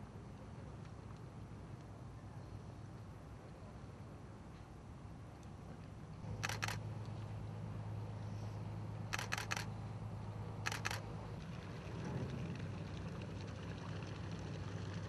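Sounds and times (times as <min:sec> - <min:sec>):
steady low hum: 0:00.0 - 0:15.0
camera shutter clicks: 0:06.4 - 0:06.8, 0:09.1 - 0:09.7, 0:10.6 - 0:11.0.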